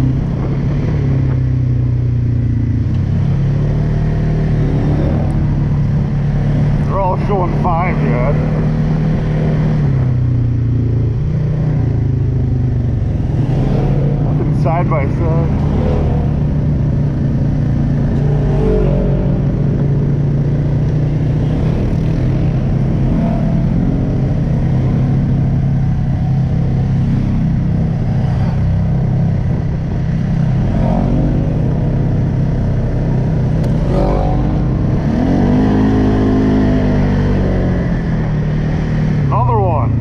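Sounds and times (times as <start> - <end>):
atv engine revving: 0.0 - 40.0.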